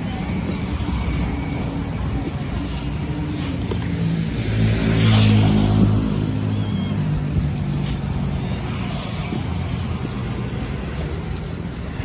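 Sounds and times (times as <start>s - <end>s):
vehicle engine driving past: 0.8s - 11.2s.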